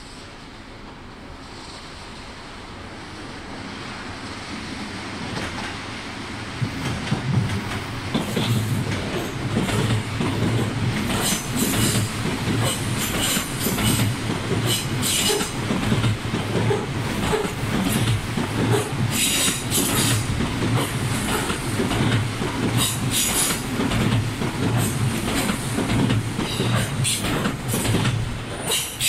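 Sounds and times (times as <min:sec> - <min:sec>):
electric train passing: 0:00.0 - 0:29.0
wheels clicking over rail joints: 0:06.6 - 0:29.0.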